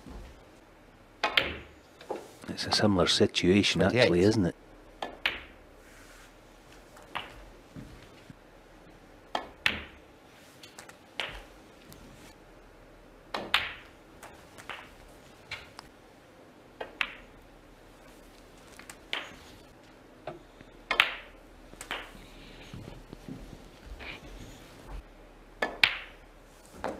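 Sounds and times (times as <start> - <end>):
snooker balls clicking: 1.2 - 2.9, 5.0 - 5.6, 6.9 - 8.3, 9.3 - 10.0, 10.6 - 12.0, 13.3 - 15.9, 16.8 - 19.7, 20.3 - 25.0, 25.6 - 26.2.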